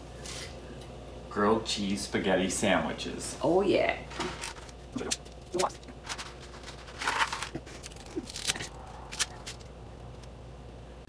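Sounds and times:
low steady hum: 0:00.0 - 0:11.0
crackling rustle: 0:04.1 - 0:10.4.

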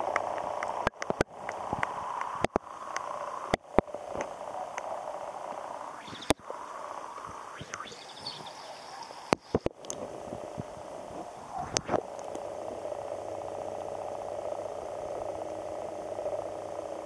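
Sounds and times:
sharp underwater clicks: 0:00.0 - 0:05.4, 0:06.0 - 0:10.0
muffled underwater hum: 0:00.0 - 0:17.0.

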